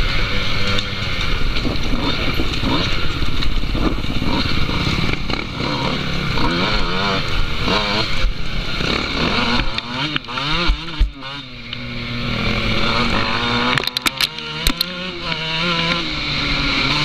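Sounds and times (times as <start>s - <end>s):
dirt bike engines revving: 0.0s - 17.0s.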